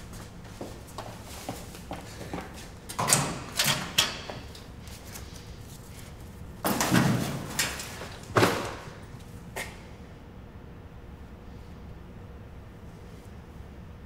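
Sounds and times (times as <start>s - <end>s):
metal locker knocks and rattles: 6.7s - 8.9s.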